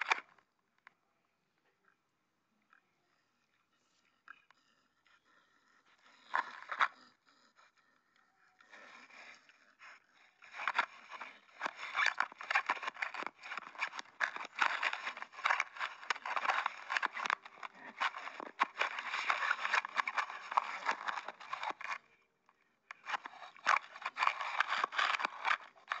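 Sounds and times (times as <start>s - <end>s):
pig chewing on camera: 4.3s - 22.0s, 22.9s - 26.0s
teeth scraping and crunching: 6.0s - 7.5s, 8.1s - 22.0s, 22.9s - 26.0s.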